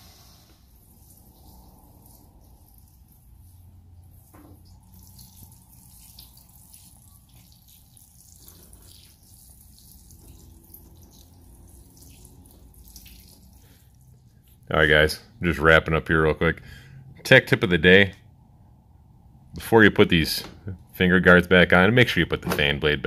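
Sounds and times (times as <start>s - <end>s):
low steady hum: 0.0s - 23.0s
water trickling and dripping: 0.9s - 14.6s.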